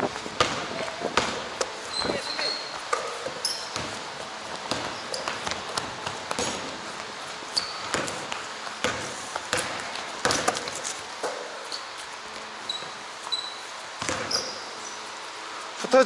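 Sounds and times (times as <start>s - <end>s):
basketball bouncing on hardwood: 0.0s - 11.6s, 14.0s - 14.6s
sneaker squeaks: 0.4s - 15.3s.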